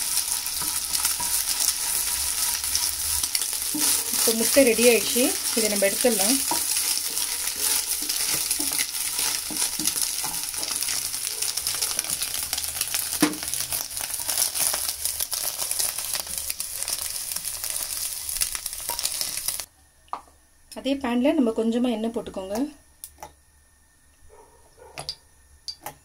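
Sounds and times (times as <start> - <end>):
spatula pushing food in pan: 0.0 - 19.6
eggs sizzling in oil: 0.0 - 19.7.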